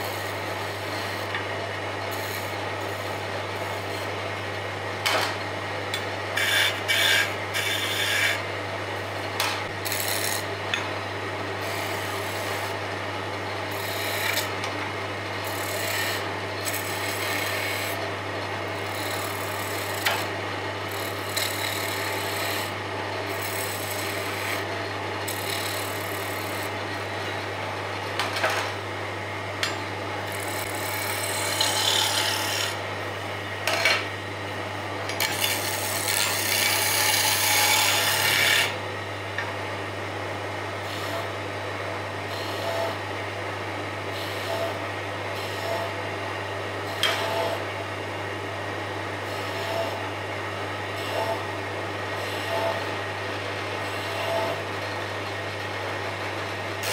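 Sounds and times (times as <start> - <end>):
chisel scraping spinning wood: 0.0 - 4.2, 5.0 - 8.5, 9.4 - 10.8, 13.7 - 14.7, 15.4 - 18.0, 18.8 - 27.4, 29.6 - 32.9, 35.1 - 38.8
wood lathe humming: 0.0 - 4.5, 5.9 - 8.5, 9.8 - 10.8, 13.7 - 14.7, 15.4 - 18.0, 18.8 - 20.3, 20.9 - 27.9, 29.6 - 32.9, 35.1 - 38.8.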